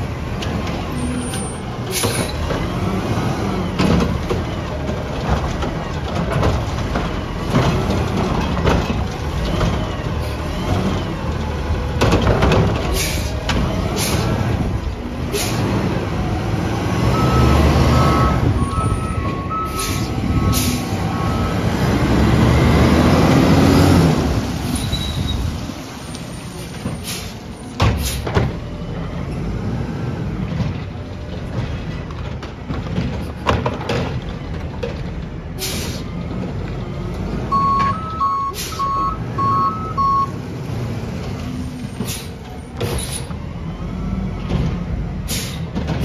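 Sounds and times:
reversing alarm beeps: 17.1s - 21.7s, 37.5s - 40.3s.

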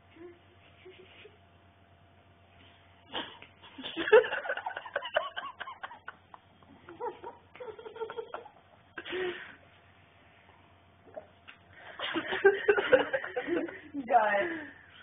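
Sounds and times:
laughter: 3.1s - 8.9s, 11.8s - 13.9s.

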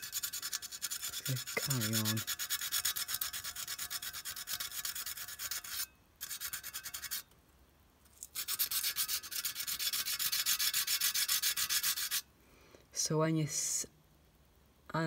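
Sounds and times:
sandpaper rubbing on metal: 0.0s - 7.2s, 8.3s - 12.2s.

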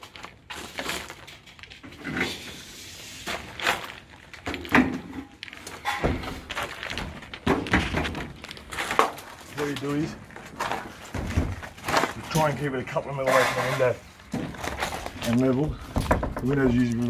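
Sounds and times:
panel knocks and thuds: 15.8s - 16.6s.

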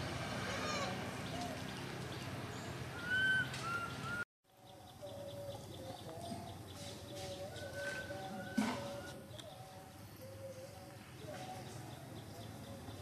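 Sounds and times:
birds chirping: 0.4s - 13.0s.

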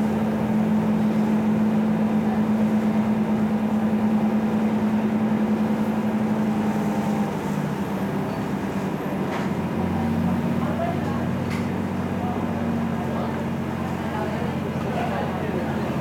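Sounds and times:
ferry engine droning: 0.0s - 16.0s.

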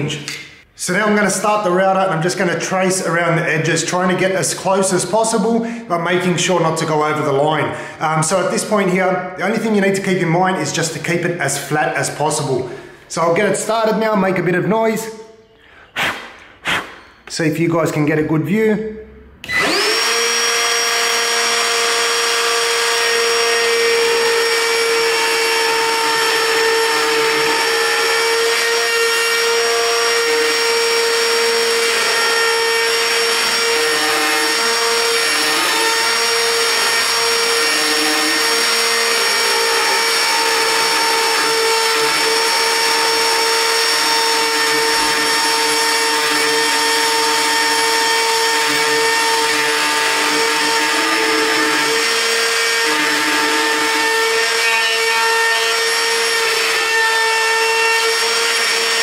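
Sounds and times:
router bit cutting wood: 19.4s - 59.0s
router whining: 19.4s - 59.0s.

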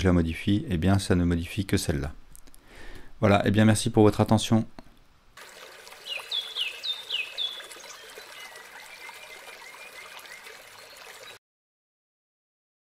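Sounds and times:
babbling stream: 5.4s - 11.4s
bird chirping: 6.0s - 11.4s.

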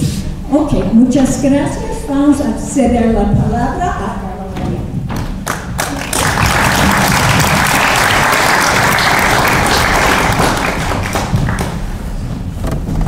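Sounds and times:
audience applauding: 5.4s - 11.9s.

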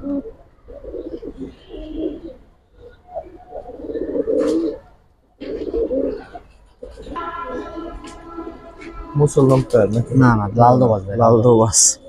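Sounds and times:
pigeons cooing: 0.0s - 8.8s.

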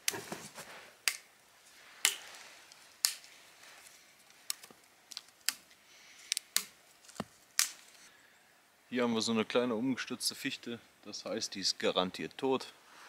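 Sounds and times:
dry twigs snapping: 1.0s - 1.3s, 2.0s - 8.0s.

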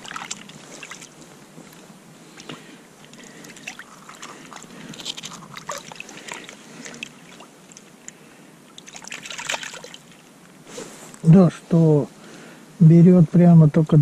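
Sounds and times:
water splashing: 0.0s - 10.4s
clicks and scrapes of fishing gear: 2.4s - 7.0s.

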